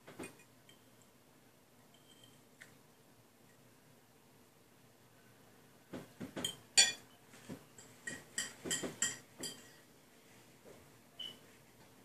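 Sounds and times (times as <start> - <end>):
metal fork clinking on plate: 6.4 - 7.0, 7.8 - 9.8.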